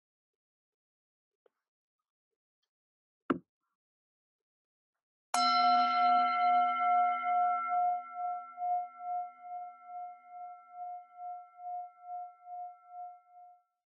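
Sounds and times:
singing bowl ringing: 5.4s - 13.6s.

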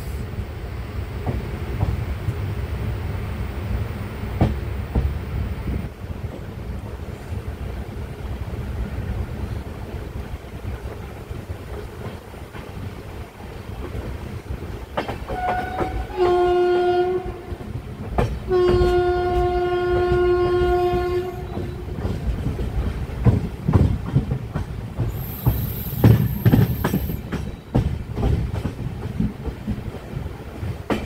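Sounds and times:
train wheels clattering over rail joints: 13.8s - 16.2s, 18.0s - 20.3s, 21.0s - 31.0s
train horn blasts: 15.3s - 17.6s, 18.5s - 22.0s.

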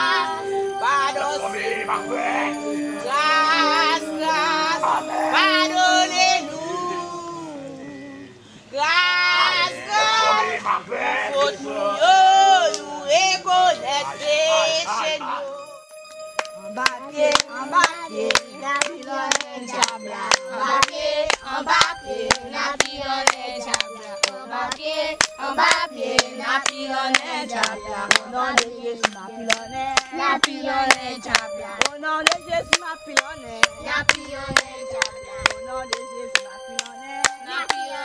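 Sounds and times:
voices singing a hymn: 0.0s - 38.0s
hands clapping in time: 16.0s - 38.0s.

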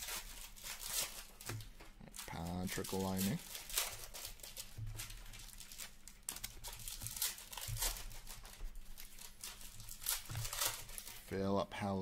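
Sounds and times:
wrapper crinkling: 0.0s - 11.9s.

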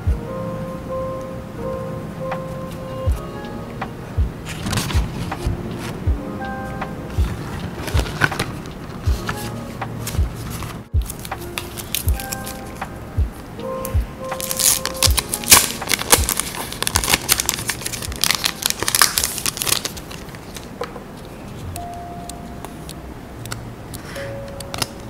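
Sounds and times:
background music: 0.0s - 20.5s, 21.6s - 25.0s
paper and plastic bag crinkling: 4.5s - 5.4s, 14.4s - 20.8s.

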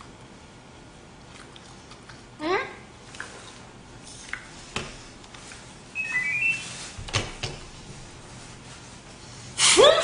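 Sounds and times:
electronic chime rising notes: 6.0s - 6.9s.

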